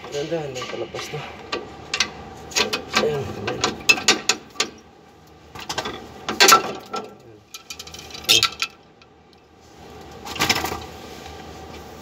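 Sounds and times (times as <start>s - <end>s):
metallic clanks and knocks: 0.0s - 4.8s, 5.6s - 8.8s.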